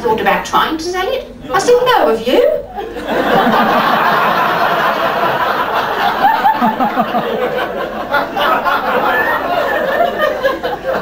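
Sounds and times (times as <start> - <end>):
audience laughing: 2.8 - 11.0.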